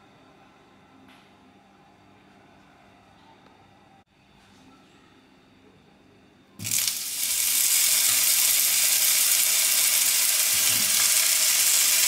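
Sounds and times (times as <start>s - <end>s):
mushrooms sizzling in hot oil: 6.6s - 12.0s.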